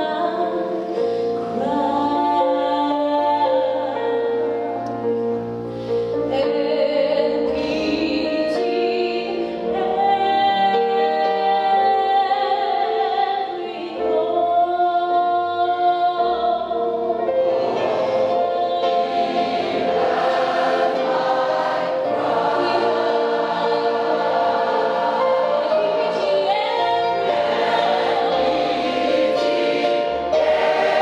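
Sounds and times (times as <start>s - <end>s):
low musical backing: 0.0s - 31.0s
choir singing: 17.1s - 31.0s.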